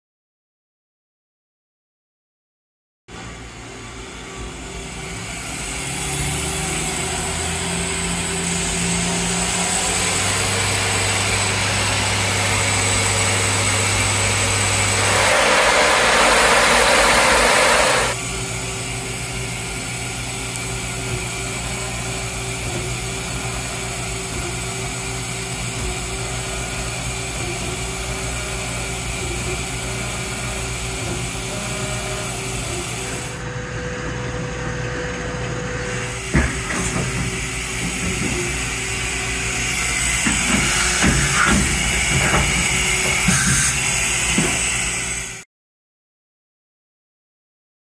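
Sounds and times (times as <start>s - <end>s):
machine motor hum and whine: 3.1s - 45.4s
loud hiss: 10.5s - 18.2s.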